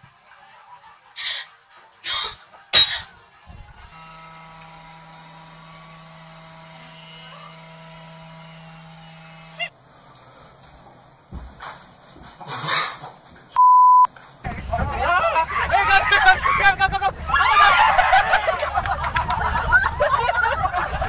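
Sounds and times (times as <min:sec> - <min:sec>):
robot vacuum cleaner humming: 0:05.7 - 0:14.5.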